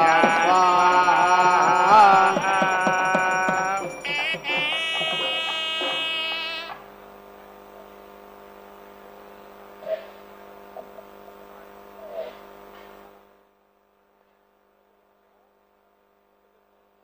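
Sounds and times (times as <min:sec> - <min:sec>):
music: 0:00.0 - 0:06.8
electrical mains hum: 0:00.0 - 0:17.0.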